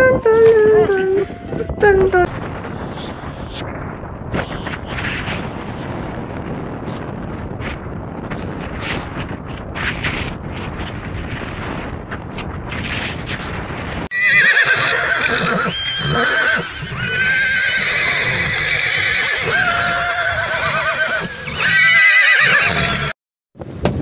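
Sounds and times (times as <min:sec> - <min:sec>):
wind noise: 0:00.0 - 0:23.0, 0:23.6 - 0:24.0
horses whinnying: 0:14.1 - 0:23.2.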